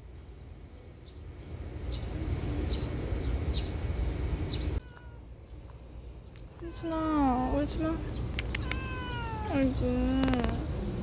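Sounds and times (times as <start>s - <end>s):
low engine-like rumble: 0.0s - 11.0s
bird chirping: 0.1s - 3.8s, 4.4s - 4.8s, 7.1s - 10.8s.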